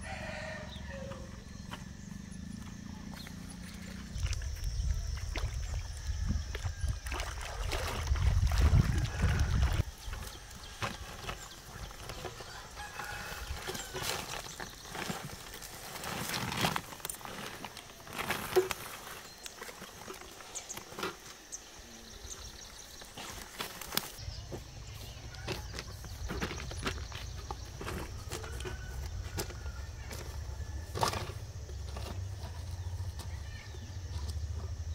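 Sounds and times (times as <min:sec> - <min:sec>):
rooster crowing: 0:00.0 - 0:01.5, 0:12.4 - 0:14.1, 0:28.1 - 0:31.0
plastic bag rustling: 0:10.1 - 0:21.2.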